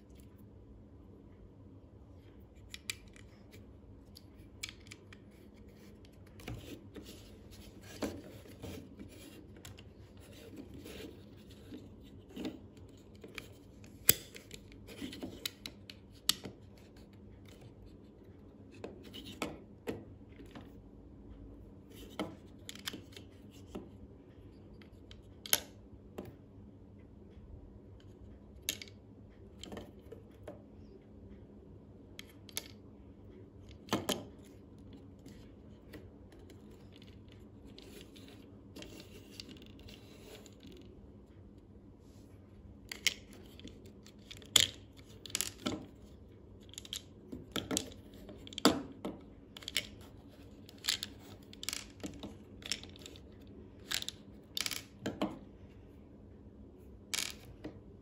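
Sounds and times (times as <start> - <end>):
plastic bricks clicking together: 42.9 - 55.3, 57.1 - 57.6.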